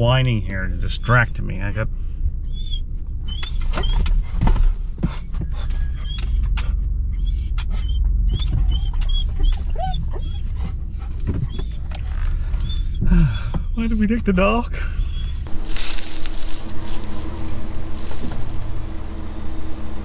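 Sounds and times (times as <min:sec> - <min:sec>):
dog whimpering: 0:05.6 - 0:06.4, 0:07.2 - 0:10.8, 0:12.6 - 0:14.1, 0:15.0 - 0:15.4
truck engine rumble: 0:14.8 - 0:20.0.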